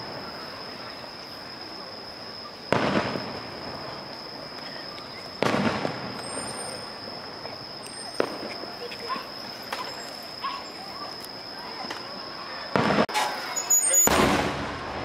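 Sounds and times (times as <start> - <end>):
fireworks shells booming: 2.6 - 10.4, 11.8 - 15.0.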